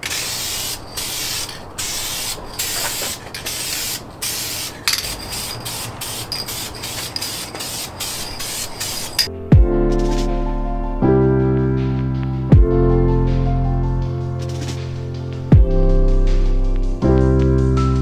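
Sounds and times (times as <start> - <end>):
aerosol can spraying: 0.0 - 9.3, 14.4 - 14.8.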